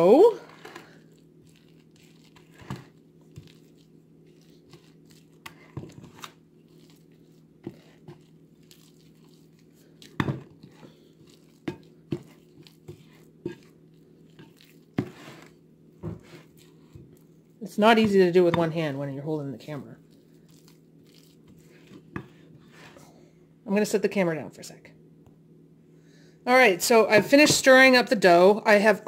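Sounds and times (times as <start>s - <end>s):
spoon stirring wet dough: 0.0s - 18.9s, 19.6s - 23.0s.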